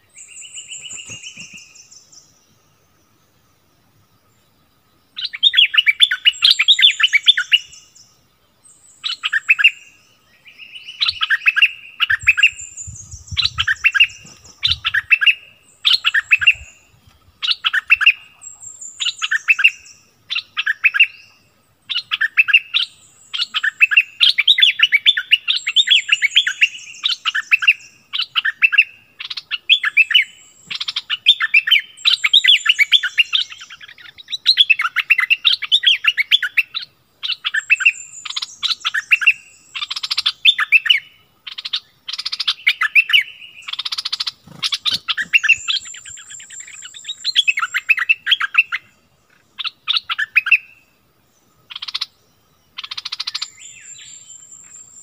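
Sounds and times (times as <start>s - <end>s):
bird chattering song: 0.0s - 2.6s, 5.1s - 55.0s
high whistled bird notes: 42.2s - 48.9s.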